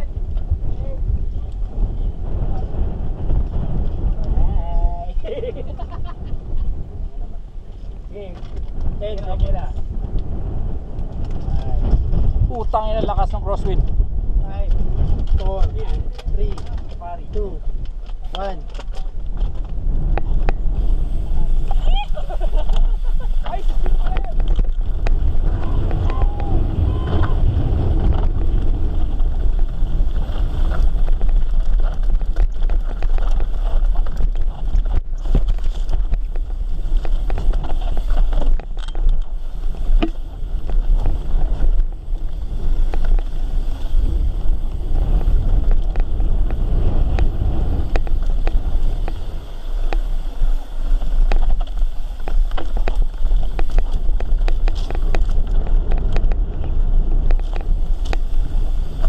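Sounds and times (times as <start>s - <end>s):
wind buffeting microphone: 0.0s - 59.0s
bike rattling clicks and knocks: 8.2s - 10.3s, 10.9s - 59.0s
tyre rumble on dirt: 23.5s - 59.0s.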